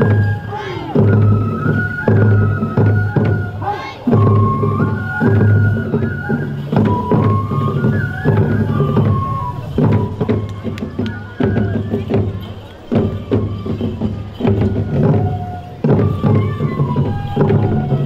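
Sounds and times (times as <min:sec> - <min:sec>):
high flute melody: 0:00.0 - 0:18.0
large drum beats: 0:00.0 - 0:18.0.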